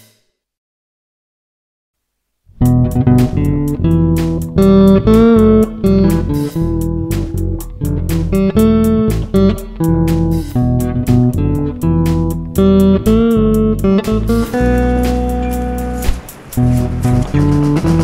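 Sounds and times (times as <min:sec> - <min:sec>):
band music with drums and bass: 0:02.6 - 0:18.0.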